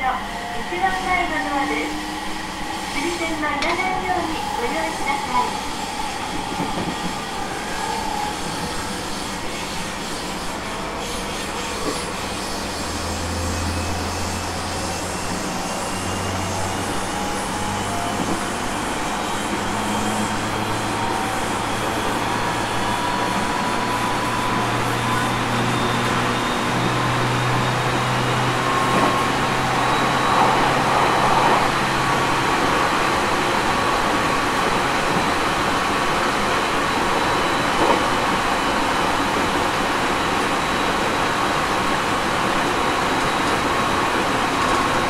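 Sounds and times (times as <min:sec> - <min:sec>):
train running noise: 0:00.0 - 0:45.0
train motor hum: 0:12.7 - 0:34.2
rising whine: 0:19.1 - 0:34.1.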